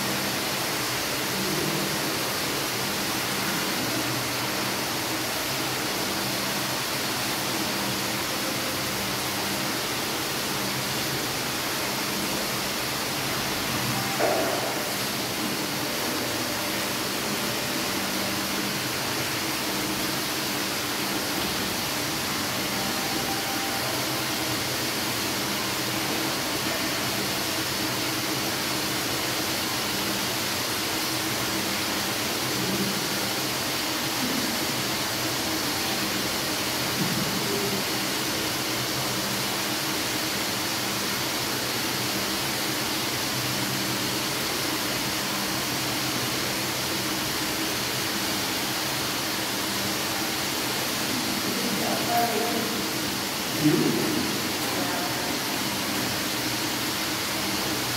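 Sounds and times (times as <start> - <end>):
steady hiss: 0.0 - 57.9.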